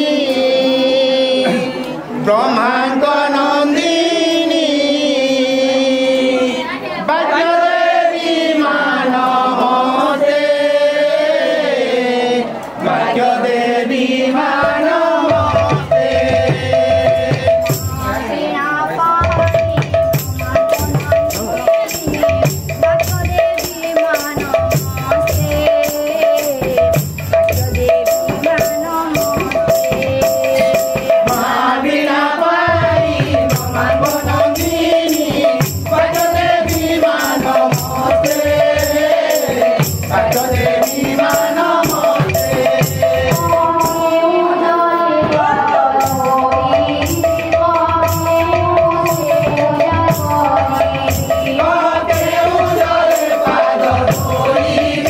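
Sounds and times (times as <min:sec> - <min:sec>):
group singing a devotional chant: 0:00.0 - 0:55.0
jingle cymbals beat: 0:14.4 - 0:55.0.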